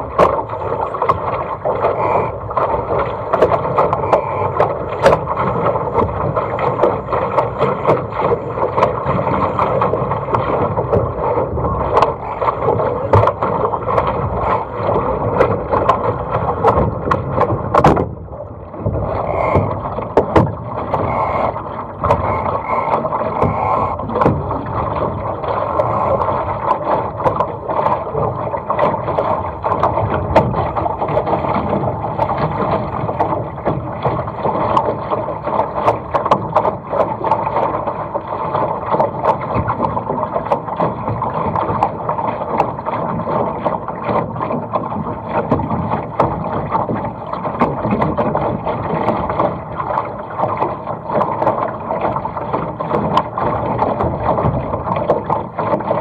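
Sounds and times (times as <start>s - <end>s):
spray ticks and hull slaps: 0.0s - 56.0s
water rushing along a hull: 0.0s - 56.0s.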